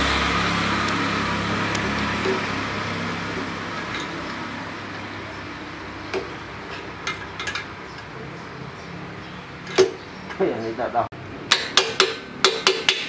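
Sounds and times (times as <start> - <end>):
light metal clicks and knocks: 6.1 - 8.1.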